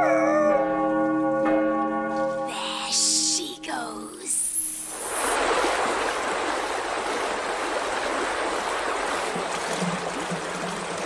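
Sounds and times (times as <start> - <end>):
floodwater rushing: 2.6 - 11.0
wave surging over ledge: 4.9 - 11.0.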